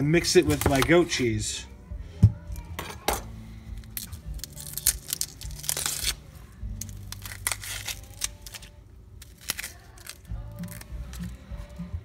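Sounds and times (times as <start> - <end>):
onion skin crackling and tearing: 3.8 - 11.5.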